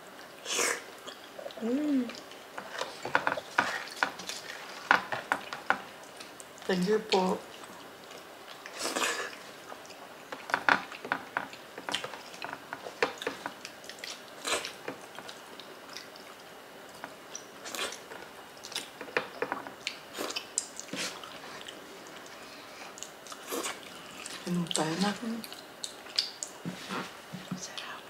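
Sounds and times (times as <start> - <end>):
chewing: 0.2 - 26.6.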